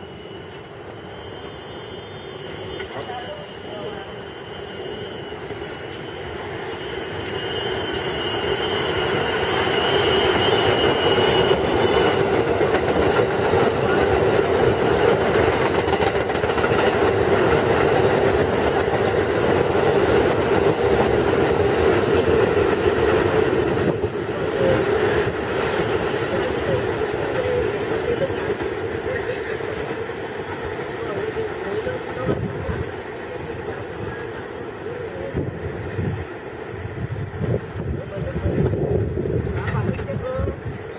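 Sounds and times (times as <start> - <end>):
subway train wheels rumbling: 0.0 - 40.9.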